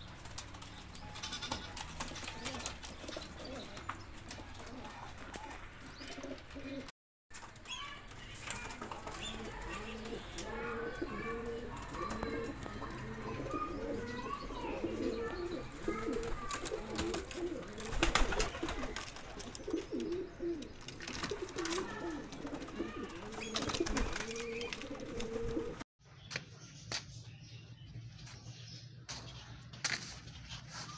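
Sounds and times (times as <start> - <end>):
pigeons cooing: 0.3 - 6.9, 8.6 - 25.8.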